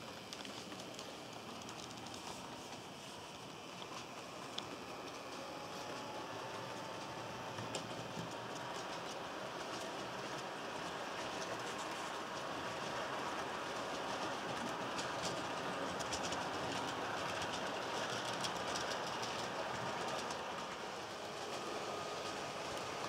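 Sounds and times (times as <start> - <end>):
steady running hiss: 0.0 - 23.0
train wheels clicking on rails: 0.0 - 23.0.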